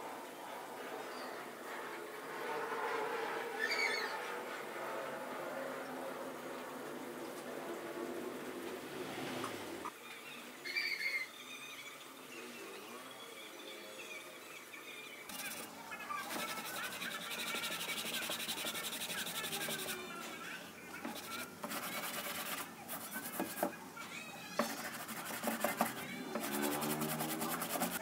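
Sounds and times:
sanding block rubbing wood: 0:15.3 - 0:20.2, 0:21.0 - 0:23.7, 0:24.6 - 0:28.0.

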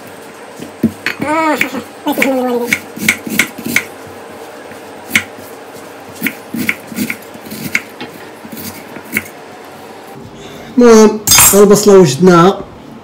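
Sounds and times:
knife chopping on a board: 0:00.6 - 0:03.9, 0:05.1 - 0:05.4, 0:06.1 - 0:09.3.

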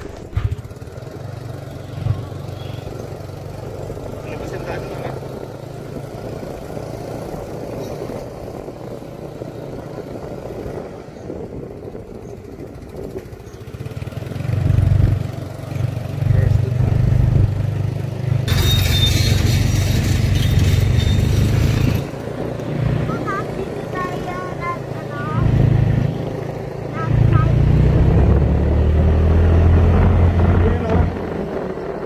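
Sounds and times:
motorcycle engine: 0:00.0 - 0:32.0
wind buffeting microphone: 0:03.1 - 0:15.7, 0:20.1 - 0:32.0
tyres on dirt road hissing: 0:18.5 - 0:28.0.

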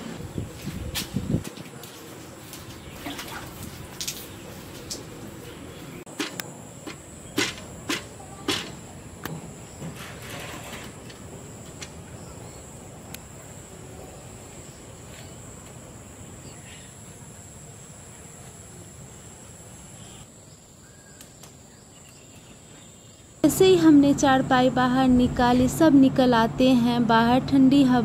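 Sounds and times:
high-pitched insect drone: 0:06.6 - 0:21.1.

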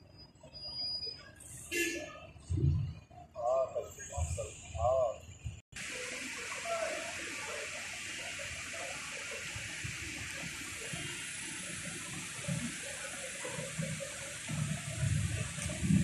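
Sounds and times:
fountain water rushing: 0:05.8 - 0:16.0.

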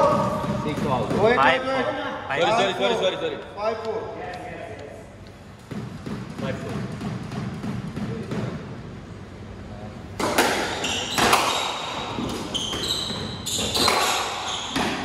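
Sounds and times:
squash ball hits: 0:00.0 - 0:01.4, 0:05.6 - 0:08.8, 0:10.2 - 0:15.0
shoes squeaking on wooden floor: 0:10.8 - 0:15.0.

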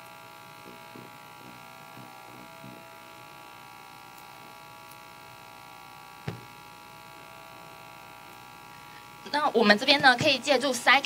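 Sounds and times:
steady electrical buzz: 0:00.0 - 0:11.0
short thump: 0:06.2 - 0:06.6.

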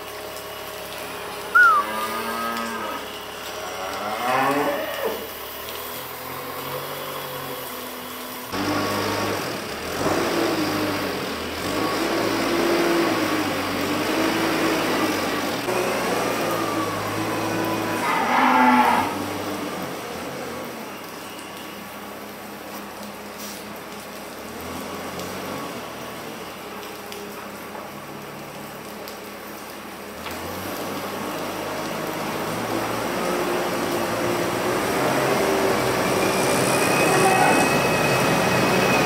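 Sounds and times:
cows mooing: 0:01.6 - 0:05.3, 0:17.5 - 0:19.3.

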